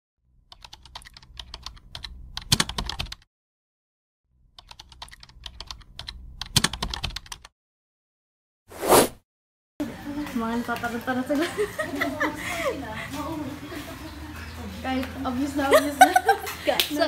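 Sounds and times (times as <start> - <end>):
keyboard typing: 0.5 - 3.2, 4.6 - 7.5.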